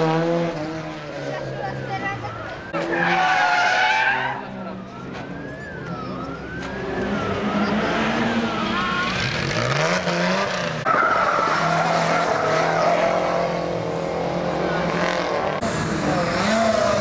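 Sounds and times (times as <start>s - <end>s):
rally car engine revving: 0.0s - 1.6s, 7.0s - 17.0s.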